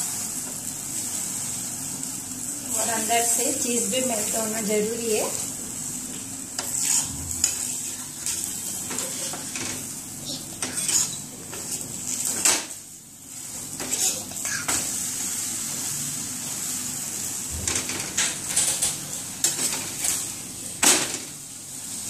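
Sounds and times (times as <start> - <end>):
bread sizzling on a griddle: 0.0 - 22.0
metal spatula scraping a pan: 6.6 - 9.7, 10.6 - 12.3.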